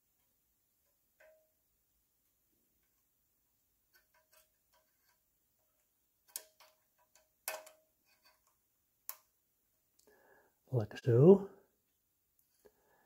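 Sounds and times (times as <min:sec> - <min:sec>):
small metallic clicks: 0:06.2 - 0:09.3.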